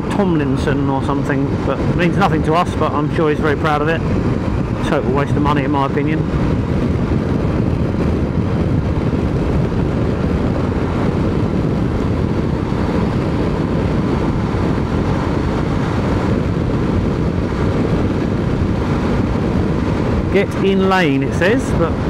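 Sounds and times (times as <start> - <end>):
wind and road noise: 0.0 - 22.0
motorcycle engine running: 4.0 - 22.0.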